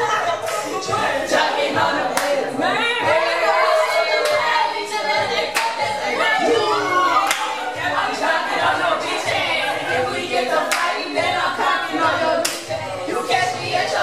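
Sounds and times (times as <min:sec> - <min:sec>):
music: 0:00.0 - 0:14.0
people singing along loudly: 0:00.0 - 0:14.0
hand claps: 0:05.5 - 0:05.8, 0:07.2 - 0:07.5, 0:10.7 - 0:10.9, 0:12.4 - 0:12.7.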